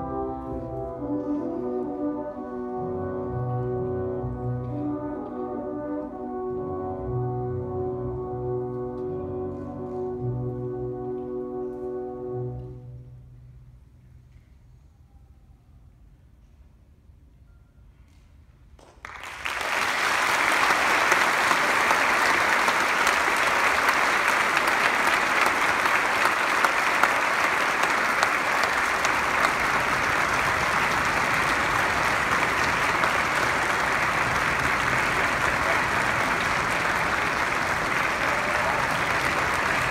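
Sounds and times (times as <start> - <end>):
audience applauding: 18.8 - 39.9.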